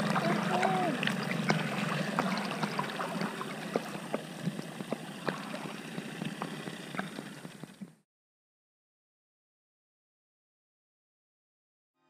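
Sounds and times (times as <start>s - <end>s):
water drips on camera: 0.0s - 7.7s
water sloshing and splashing: 0.0s - 7.9s
steady low hum: 0.0s - 8.0s.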